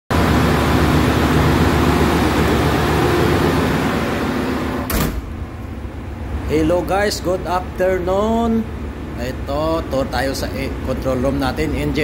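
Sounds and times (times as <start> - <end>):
engine room machinery din: 0.1 - 12.0
short thump: 4.9 - 5.3.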